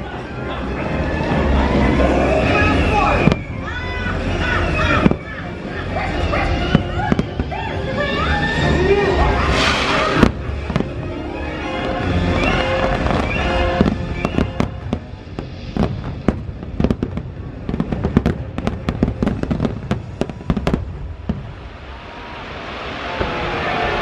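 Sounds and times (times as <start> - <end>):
music playing: 0.0 - 20.7
fireworks cracking and popping: 2.3 - 3.5, 9.4 - 21.7.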